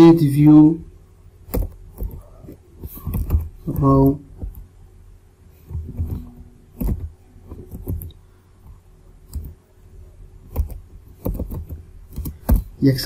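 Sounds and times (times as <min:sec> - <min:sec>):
keyboard keystrokes: 0:06.8 - 0:08.2, 0:09.3 - 0:09.6, 0:10.5 - 0:12.7.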